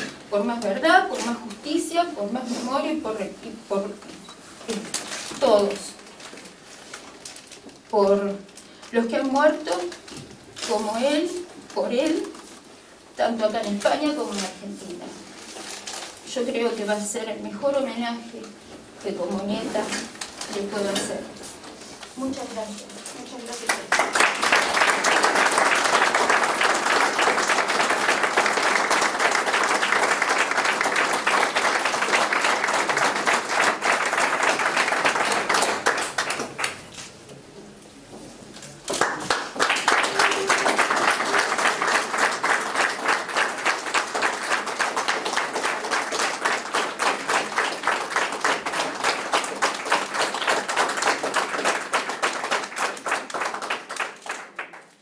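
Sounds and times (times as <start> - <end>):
crowd applauding: 23.7 - 36.9, 38.9 - 55.0.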